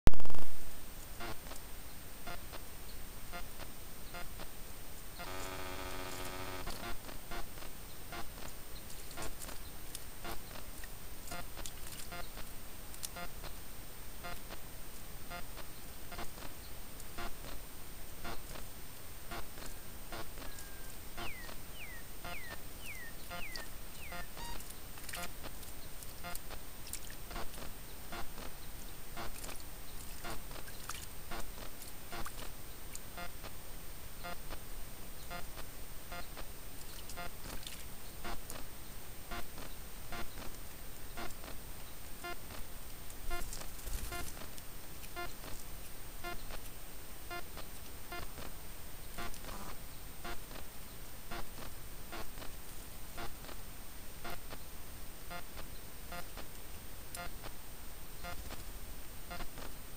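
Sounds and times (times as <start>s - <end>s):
steady hiss: 0.3s - 59.9s.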